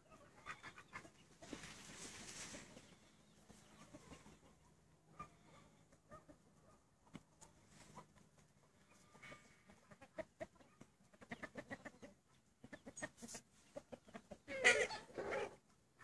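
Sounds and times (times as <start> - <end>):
hens clucking: 0.0 - 16.0
harsh two-part hen call: 14.4 - 15.6.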